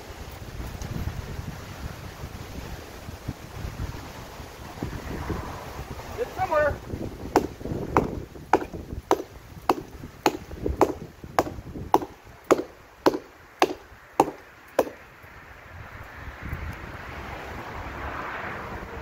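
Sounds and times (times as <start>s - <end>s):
axe chopping wood: 7.3s - 15.0s.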